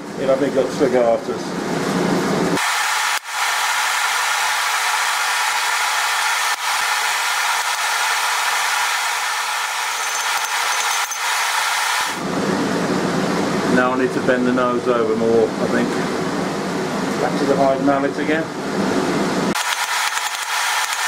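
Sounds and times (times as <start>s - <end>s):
forge fire hissing: 2.6s - 12.4s.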